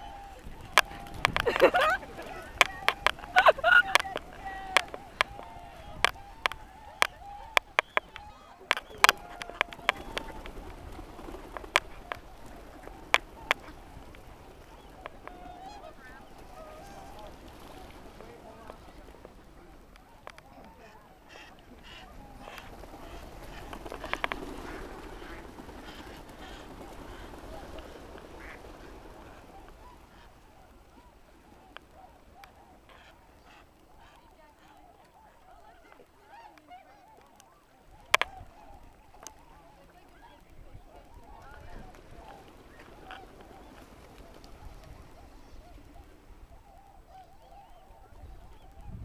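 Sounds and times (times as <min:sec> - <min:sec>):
faint waterfowl calls: 0:00.0 - 0:49.0
light clicks: 0:00.6 - 0:15.4.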